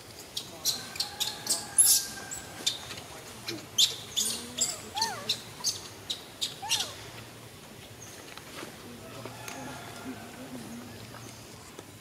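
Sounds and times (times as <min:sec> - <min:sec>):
baby monkey crying: 0:06.6 - 0:07.0.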